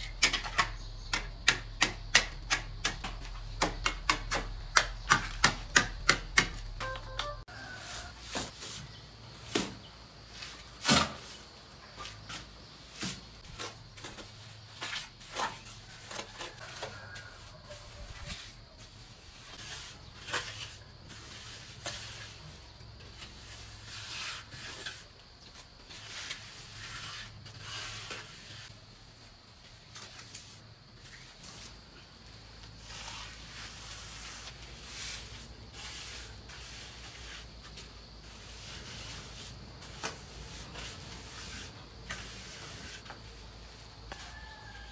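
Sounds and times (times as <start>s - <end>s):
shovel scraping on concrete: 0.0s - 28.8s, 32.6s - 44.9s
hand float smoothing wet mortar: 13.0s - 28.7s, 32.7s - 44.6s.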